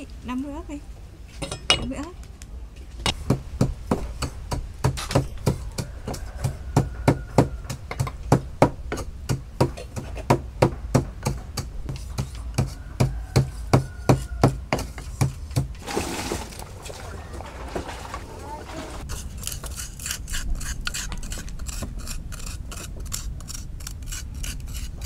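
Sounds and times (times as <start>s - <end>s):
pestle pounding in wooden mortar: 3.1s - 16.4s.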